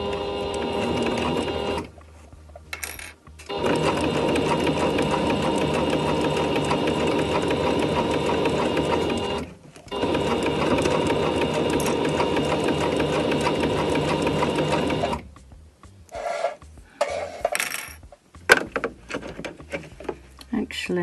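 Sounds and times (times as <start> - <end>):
sewing machine stitching: 0.0 - 1.9, 3.5 - 15.2.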